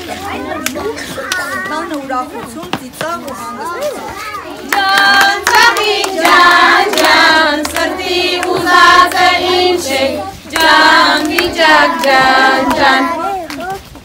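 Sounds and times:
hands clapping: 0.6 - 1.5, 4.6 - 9.4, 10.5 - 13.8
children and women singing: 4.6 - 13.8.

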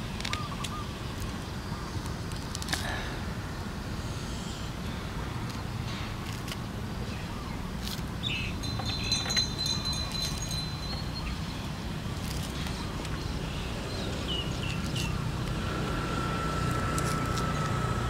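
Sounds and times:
orange rind tearing: 2.0 - 2.9, 6.2 - 6.6, 12.2 - 13.2, 16.6 - 18.0.

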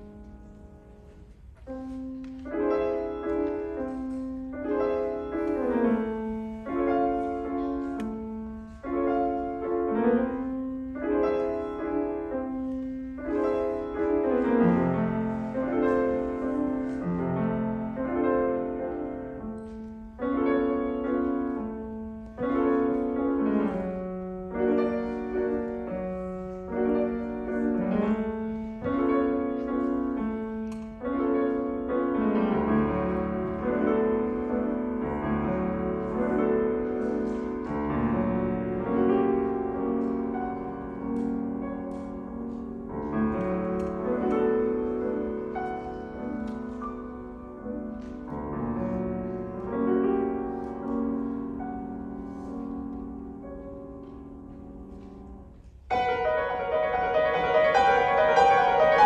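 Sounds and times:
grand piano playing: 0.0 - 59.0.

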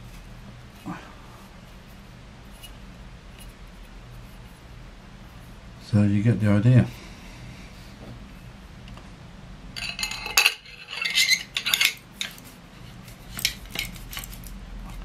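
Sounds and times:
metal segments clinking and scraping: 9.8 - 12.5, 13.3 - 14.5.

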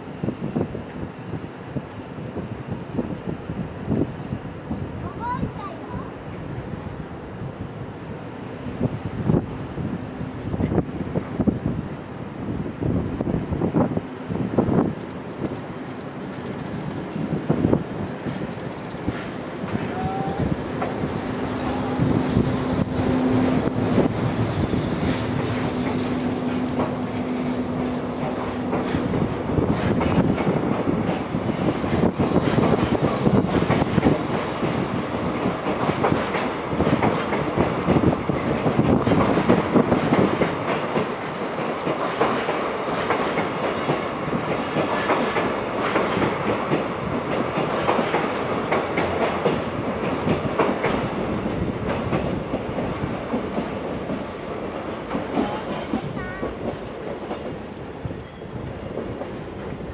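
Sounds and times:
train wheels clattering on rails: 13.6 - 59.9.

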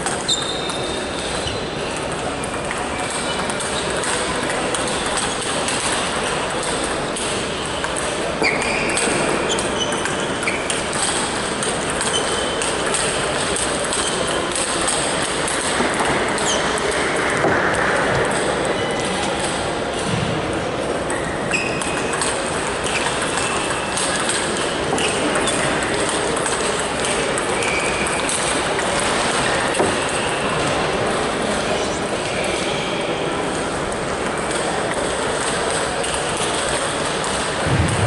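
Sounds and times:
table tennis balls clicking: 0.0 - 19.7, 21.0 - 30.8
hum of hall noise: 0.0 - 38.0
short high squeaks: 0.3 - 1.6.

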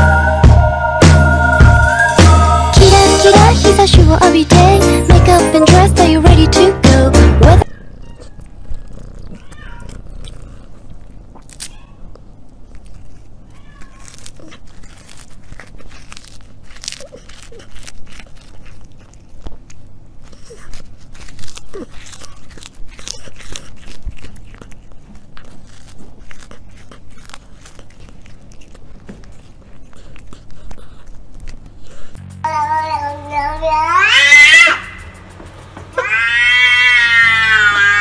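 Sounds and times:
cat crunching and chewing: 2.8 - 38.0
cat meowing: 7.6 - 10.6, 11.6 - 12.1, 13.4 - 14.7, 32.5 - 35.0, 36.0 - 38.0.

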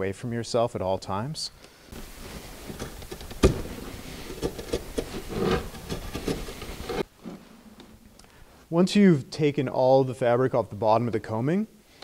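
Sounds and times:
knife scraping nylon skin: 2.0 - 7.4.

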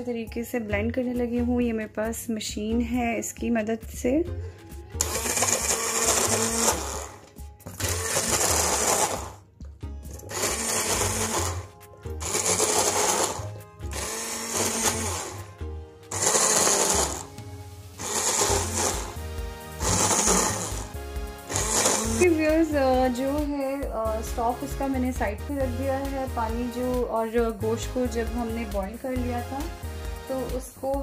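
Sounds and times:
immersion blender grinding thick mixture: 5.0 - 9.4, 10.1 - 23.2.

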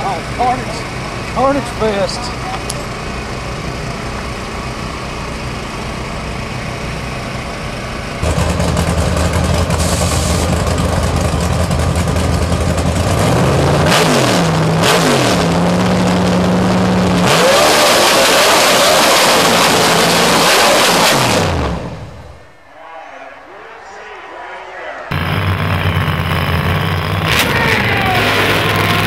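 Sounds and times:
drag car engine revving: 0.0 - 22.6, 24.6 - 29.0.

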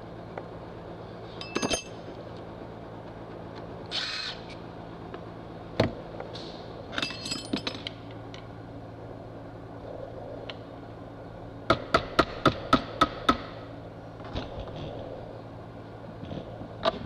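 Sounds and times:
low shop hum: 0.0 - 17.0
metal tools clinking on workbench: 1.4 - 2.0, 6.9 - 8.0.

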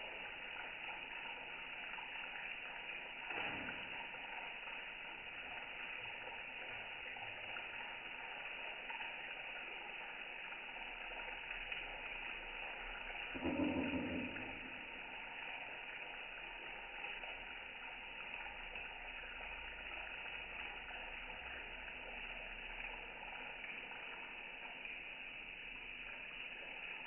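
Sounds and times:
tap water running into sink: 0.0 - 27.0
brief low sound: 13.4 - 14.9.

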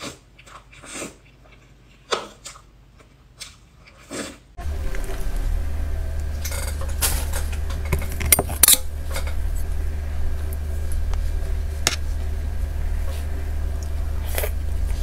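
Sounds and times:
steady low hum: 4.6 - 15.0.

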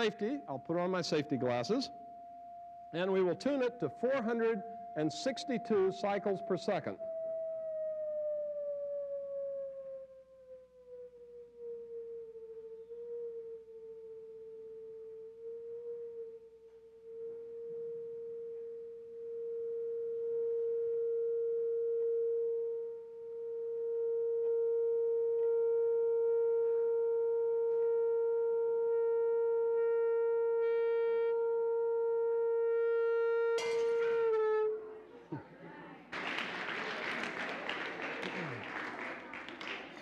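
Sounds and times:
loudspeaker steady pure tone: 0.0 - 2.0, 2.8 - 7.0.

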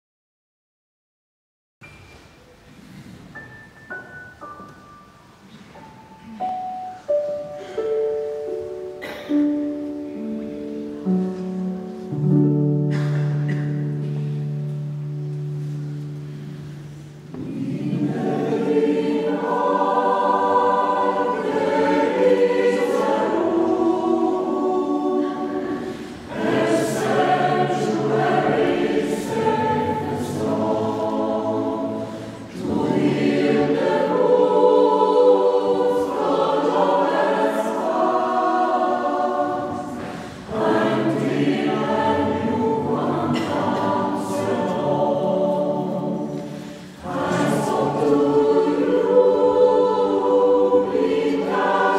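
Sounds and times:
choir singing: 15.6 - 51.9
singers breathing: 25.8 - 26.3, 32.0 - 32.5, 40.0 - 40.5, 46.5 - 47.0.

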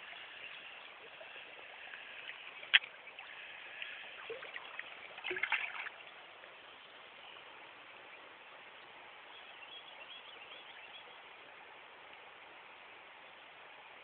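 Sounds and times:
stream water flowing over gravel: 0.0 - 8.5
landing net splashing in water: 4.2 - 6.0.

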